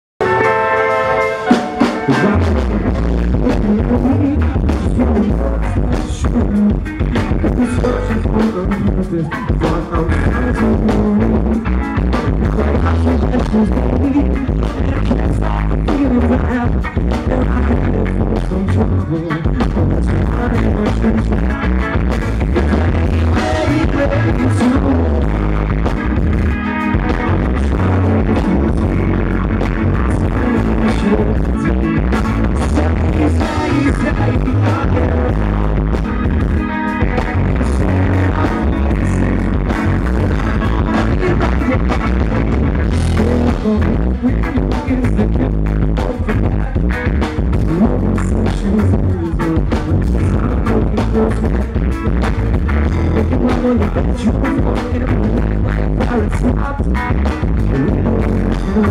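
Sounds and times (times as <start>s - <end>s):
live rock band playing: 0.2s - 58.9s
lead singer singing: 0.3s - 52.0s, 52.9s - 58.9s.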